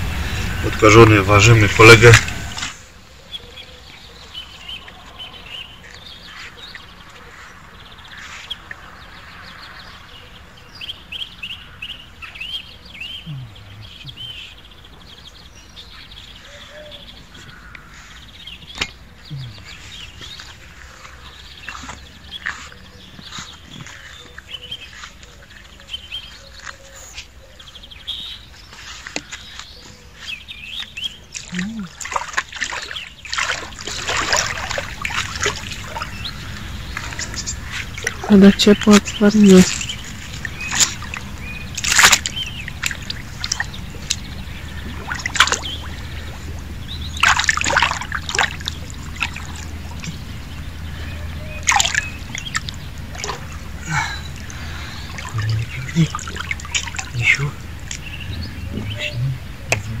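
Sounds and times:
water splashing and trickling: 0:00.0 - 0:03.1, 0:03.9 - 0:27.4, 0:28.1 - 1:00.0
high-pitched animal calls: 0:50.9 - 1:00.0.

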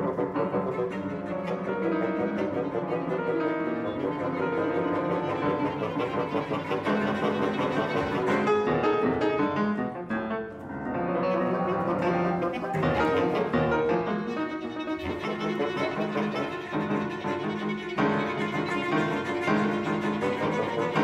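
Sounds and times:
chamber ensemble playing classical music: 0:00.0 - 0:21.0.

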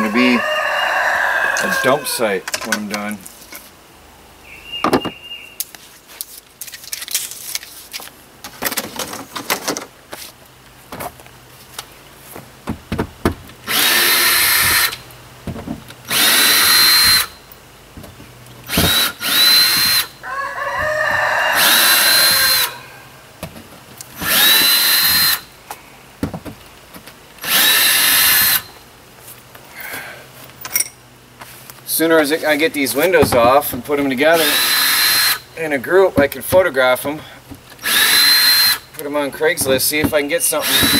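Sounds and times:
power drill whining: 0:13.6 - 0:15.0, 0:16.1 - 0:17.4, 0:18.7 - 0:20.2, 0:21.6 - 0:22.8, 0:24.2 - 0:25.5, 0:27.4 - 0:28.8, 0:34.3 - 0:35.5, 0:37.8 - 0:38.9, 0:40.4 - 0:40.9.

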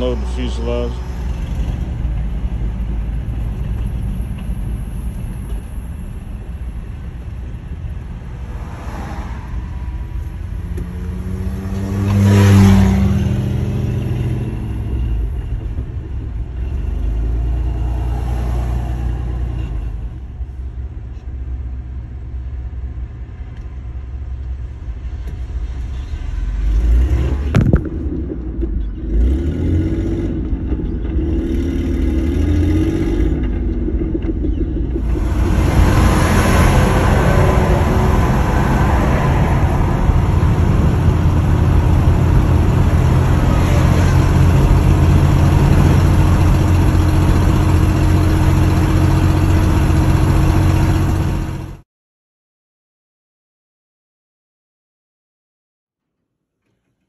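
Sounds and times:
road and engine rumble: 0:00.0 - 0:51.8.

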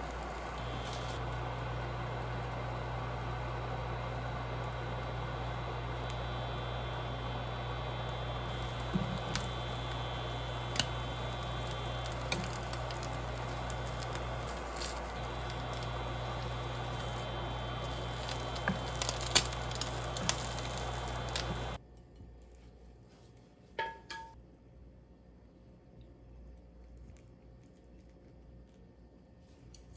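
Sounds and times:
egg sizzling in a pan: 0:00.0 - 0:21.8
cooktop hum: 0:00.0 - 0:29.9.

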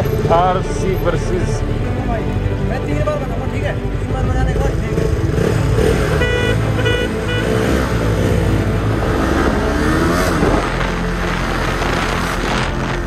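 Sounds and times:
motorcycle engine revving: 0:04.2 - 0:13.0.

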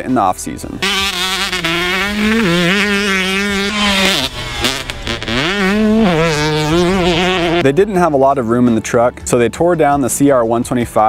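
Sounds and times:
motorcycle engine revving high: 0:00.8 - 0:07.7.

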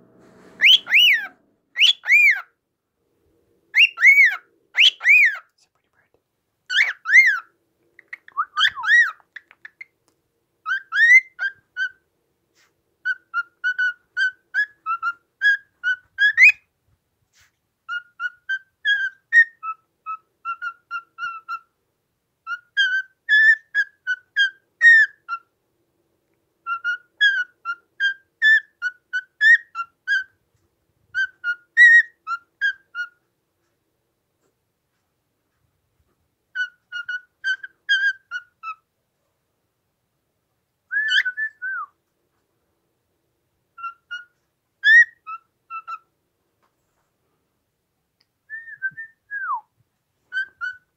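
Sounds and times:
cockatiel whistling: 0:00.6 - 0:02.5, 0:03.8 - 0:05.4, 0:06.7 - 0:09.9, 0:10.6 - 0:12.0, 0:13.0 - 0:16.6, 0:17.9 - 0:21.7, 0:22.4 - 0:25.5, 0:26.6 - 0:30.3, 0:31.2 - 0:33.2, 0:36.5 - 0:38.8, 0:40.9 - 0:41.9, 0:43.8 - 0:46.0, 0:48.5 - 0:49.6, 0:50.3 - 0:50.9.

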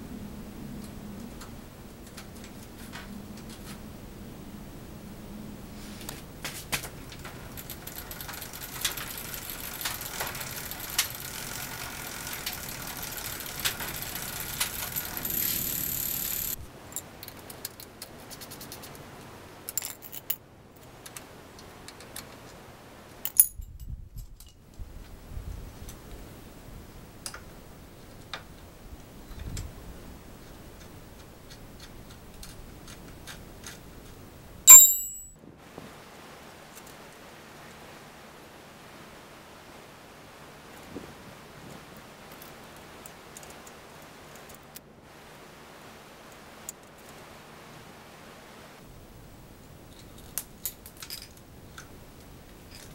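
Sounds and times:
steady high hiss: 0:00.0 - 0:17.0, 0:35.6 - 0:52.9
sharp metallic clatter: 0:07.2 - 0:16.6, 0:34.7 - 0:35.4
wrench and nuts clinking: 0:07.2 - 0:17.9, 0:23.2 - 0:24.6, 0:34.7 - 0:35.4, 0:50.0 - 0:51.4.

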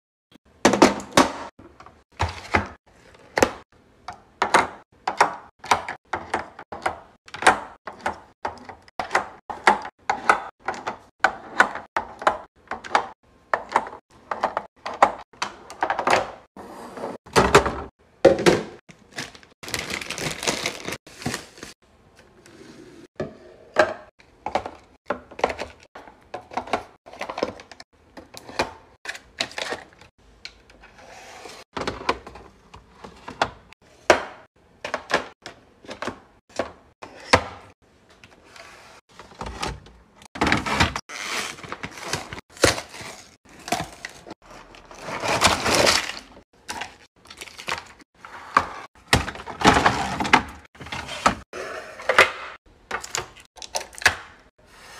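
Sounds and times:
containers clacking into plastic trays: 0:23.2 - 0:30.8, 0:31.8 - 0:38.4, 0:39.1 - 0:54.5.

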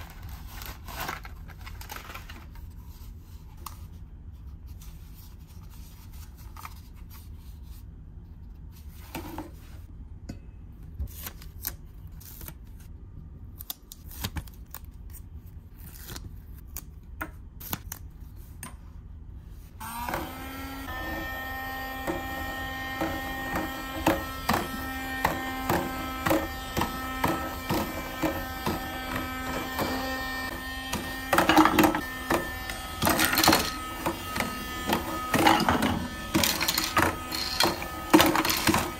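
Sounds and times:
toy motor whine and rattling: 0:19.8 - 0:38.9.

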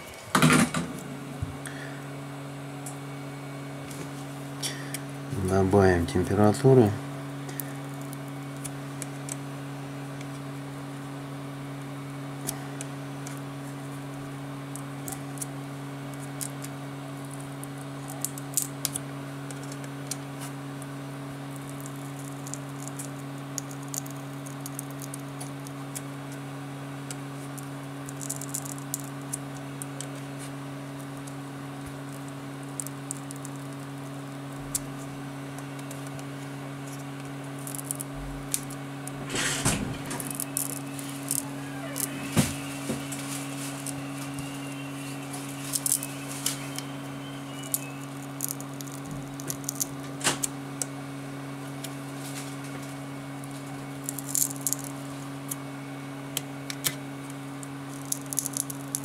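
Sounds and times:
steady low hum: 0:00.0 - 0:59.0
crackling scrape: 0:36.8 - 0:47.0.

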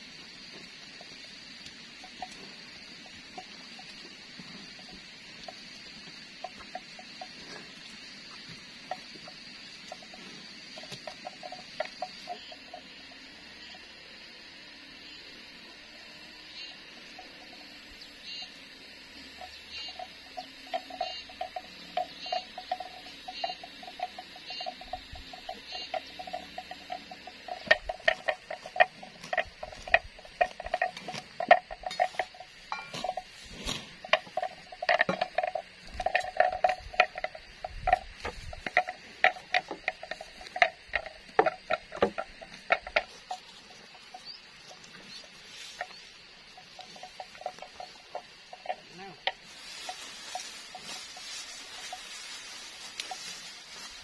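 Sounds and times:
faint rapid chirping pulse: 0:00.0 - 0:54.0
wooden knocks and clacks: 0:34.1 - 0:43.4.

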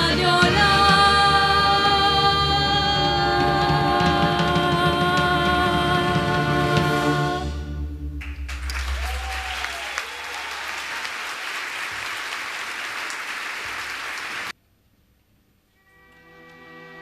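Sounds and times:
audience applauding: 0:08.2 - 0:14.5.

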